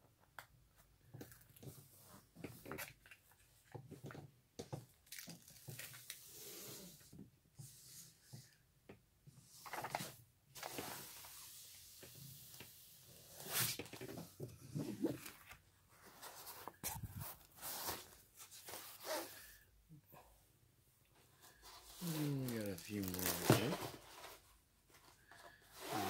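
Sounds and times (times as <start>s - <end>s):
plastic sheet rustling: 21.9s - 24.4s.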